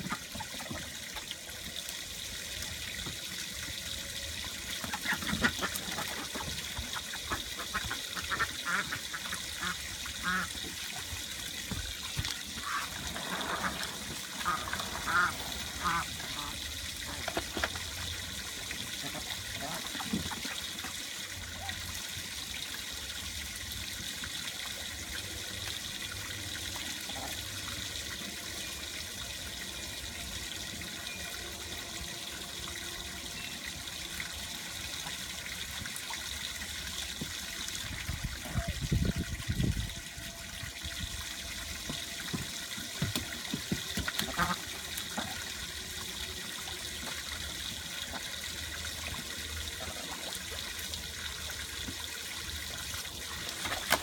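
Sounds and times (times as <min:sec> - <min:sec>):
ducks splashing in water: 0:04.8 - 0:11.2, 0:12.1 - 0:21.0, 0:43.0 - 0:45.4, 0:53.2 - 0:54.0.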